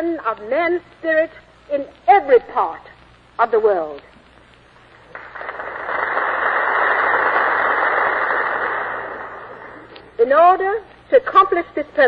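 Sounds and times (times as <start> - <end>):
audience applauding: 5.1 - 9.8.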